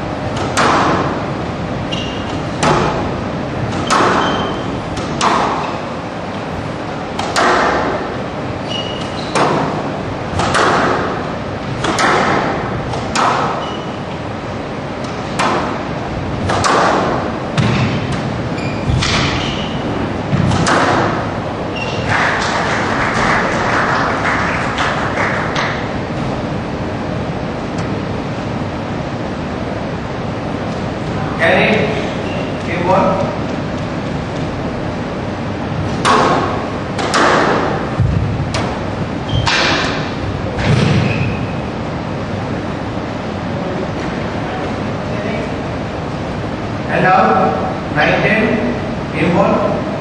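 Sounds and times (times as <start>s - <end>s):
murmur of the hall: 0.0s - 50.0s
squash ball struck by rackets: 0.3s - 1.2s, 2.2s - 5.8s, 7.2s - 8.1s, 8.9s - 13.8s, 15.0s - 19.4s, 20.3s - 21.3s, 35.8s - 41.4s.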